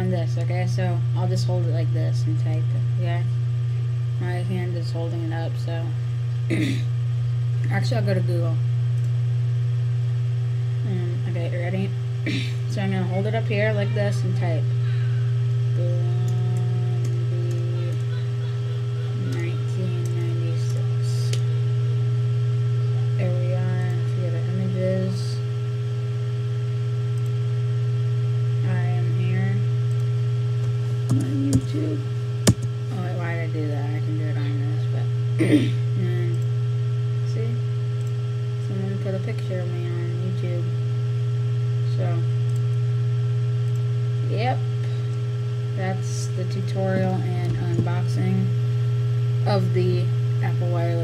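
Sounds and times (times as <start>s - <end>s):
loud low hum: 0.0s - 51.0s
faint voice: 6.5s - 6.9s, 13.5s - 21.7s, 31.1s - 32.1s.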